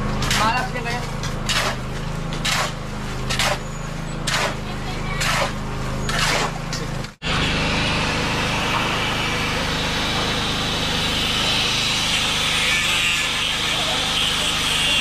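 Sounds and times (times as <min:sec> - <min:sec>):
angle grinder grinding concrete: 0:00.0 - 0:15.0
shovel scraping sand and gravel: 0:01.4 - 0:06.7.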